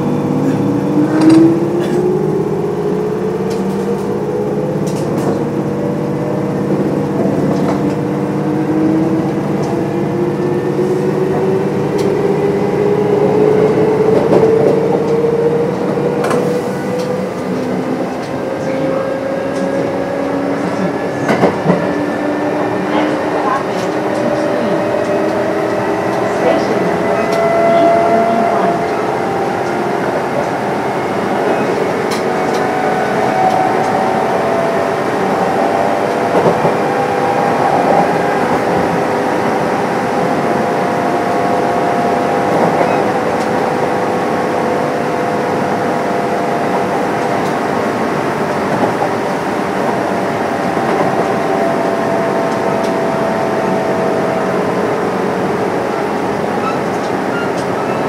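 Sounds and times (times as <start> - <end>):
electric train rolling rumble: 0.0 - 58.0
train whine: 0.0 - 58.0.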